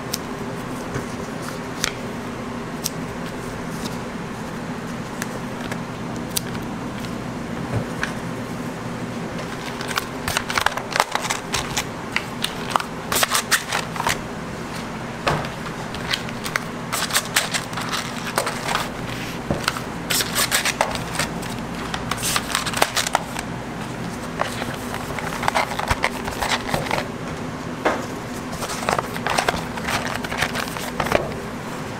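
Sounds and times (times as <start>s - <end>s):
steady low hum: 0.0s - 31.9s
plastic lids clicking and crinkling: 15.4s - 18.9s, 24.4s - 27.1s, 28.6s - 31.4s.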